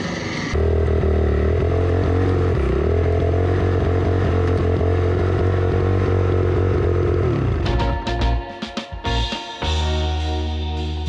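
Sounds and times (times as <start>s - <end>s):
dirt bike engine running: 0.5s - 8.4s.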